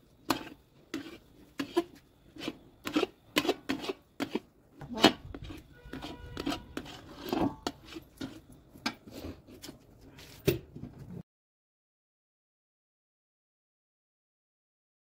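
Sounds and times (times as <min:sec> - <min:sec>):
metal spatula scraping metal pan: 0:00.0 - 0:09.6.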